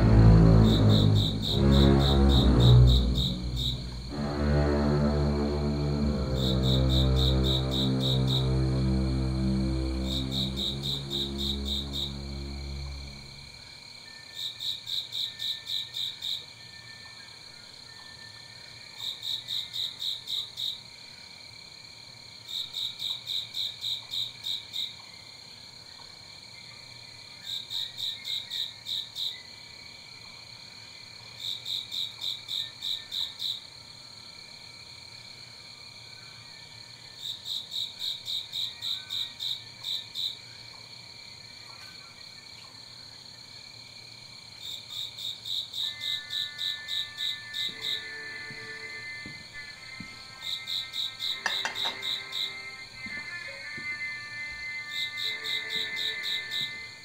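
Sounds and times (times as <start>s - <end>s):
steady high drone: 0.0s - 13.5s
crickets chirping: 0.0s - 57.0s.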